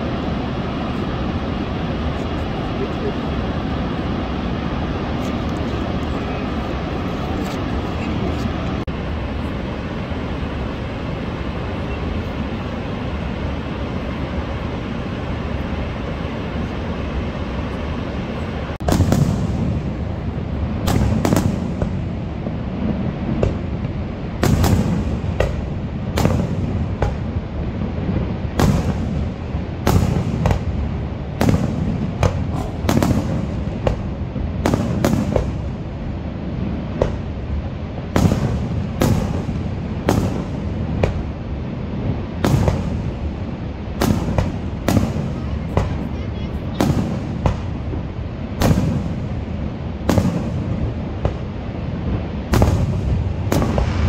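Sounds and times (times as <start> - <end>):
waterfall roaring: 0.0 - 54.0
fireworks booms echoing: 14.1 - 54.0.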